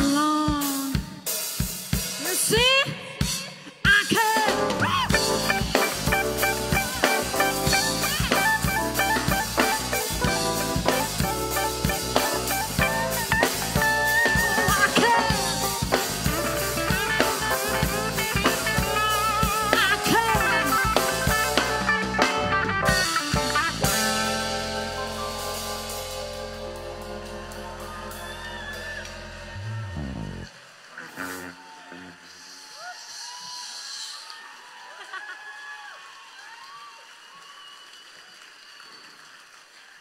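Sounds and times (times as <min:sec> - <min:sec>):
drum kit beat: 0:00.0 - 0:30.5
electric guitar lead lines: 0:05.1 - 0:30.5.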